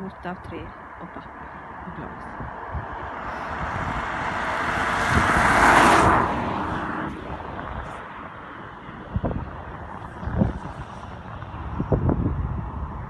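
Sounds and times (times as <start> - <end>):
car driving past: 1.3 - 13.0.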